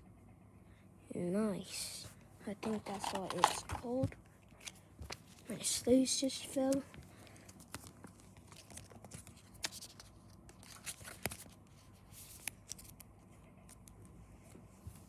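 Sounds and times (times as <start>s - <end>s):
cards and plastic sleeves rustling: 2.5s - 15.0s.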